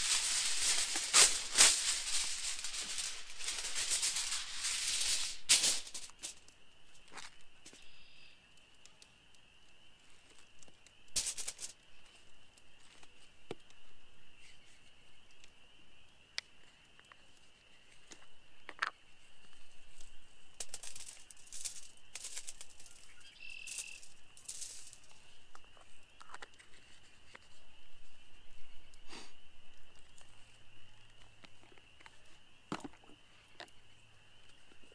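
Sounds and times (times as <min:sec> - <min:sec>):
plastic and foil crinkling: 0:00.0 - 0:06.4, 0:11.1 - 0:11.8, 0:20.6 - 0:27.0.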